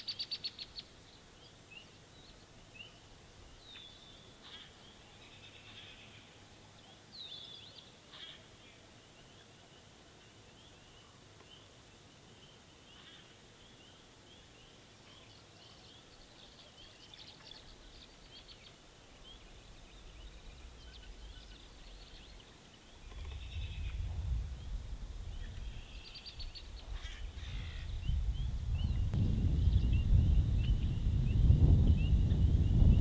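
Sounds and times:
low rumble: 0:23.2 - 0:33.0.

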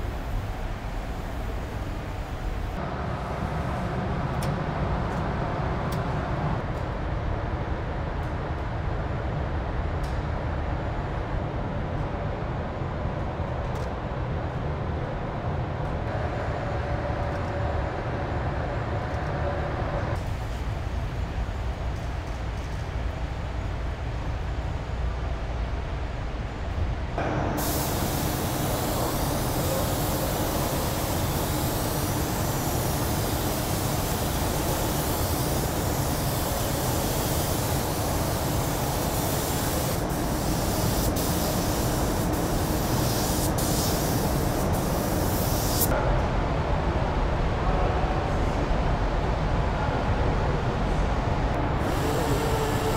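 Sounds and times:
spray guns hissing: 0:27.6 - 0:45.9, 0:51.8 - 0:52.9.

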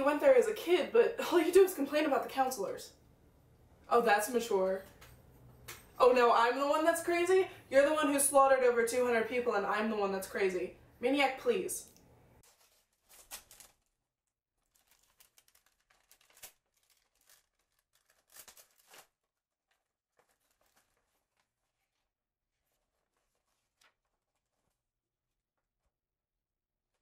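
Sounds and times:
paper rustling and crinkling: 0:12.4 - 0:14.0, 0:14.6 - 0:24.9.

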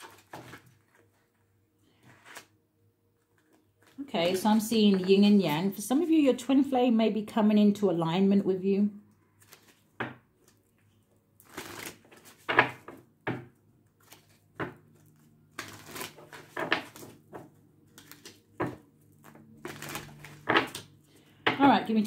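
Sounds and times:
cards being shuffled: 0:02.0 - 0:02.6, 0:09.4 - 0:10.6, 0:11.4 - 0:13.0, 0:13.9 - 0:21.0.

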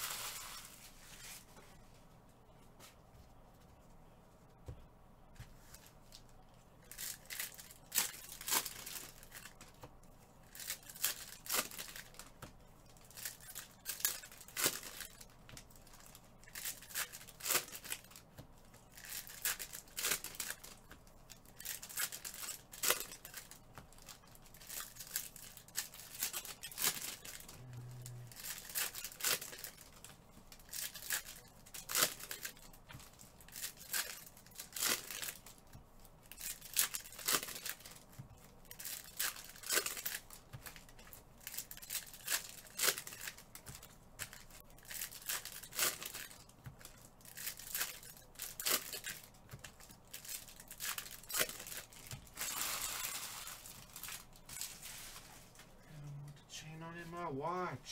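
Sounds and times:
foil wrappers crinkling: 0:00.0 - 0:01.6, 0:06.8 - 0:09.8, 0:10.4 - 0:55.8
card packs ripping open: 0:21.6 - 0:32.7, 0:36.4 - 0:38.0, 0:38.7 - 0:43.5, 0:44.2 - 0:46.5, 0:47.2 - 0:55.2.

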